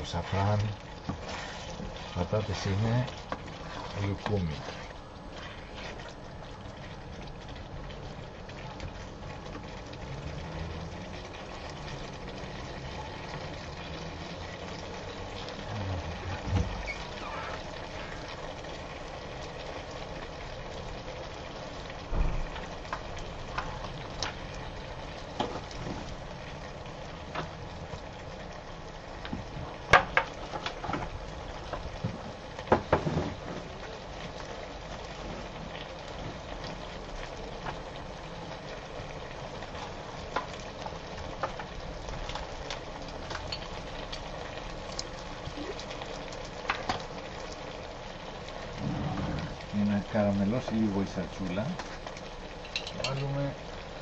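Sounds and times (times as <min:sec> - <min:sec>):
potatoes simmering in wine: 0:00.0 - 0:54.0
wooden spatula scraping pan: 0:01.1 - 0:02.2.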